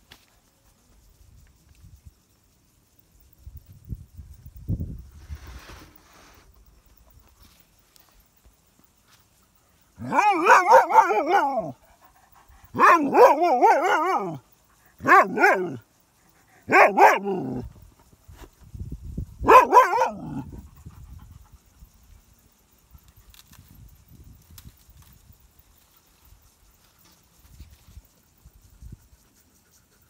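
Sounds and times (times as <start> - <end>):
dog barking and yelping: 10.0 - 14.4, 15.0 - 15.8, 16.6 - 17.7, 19.4 - 20.7.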